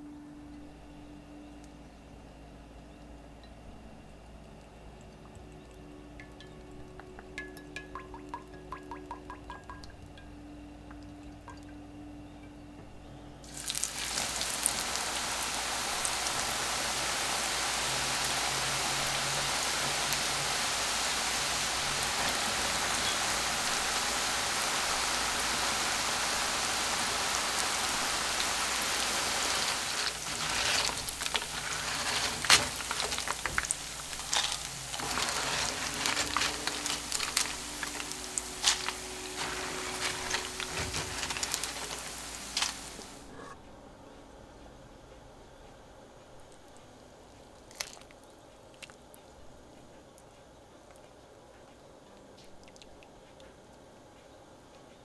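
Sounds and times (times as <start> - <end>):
oil crackling and popping: 13.4 - 43.3, 47.6 - 49.1
tortilla strips sizzling in oil: 13.4 - 43.3.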